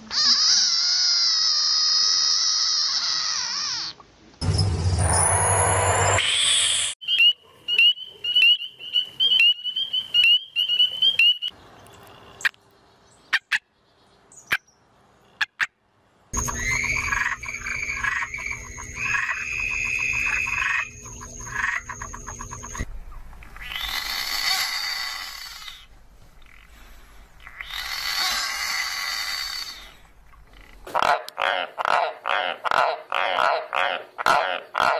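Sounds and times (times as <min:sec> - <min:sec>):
frog screaming: 0:00.1 - 0:04.0, 0:16.4 - 0:22.8, 0:23.4 - 0:26.7, 0:27.4 - 0:30.0
high chirping frog calls: 0:05.1 - 0:12.6, 0:16.4 - 0:34.9.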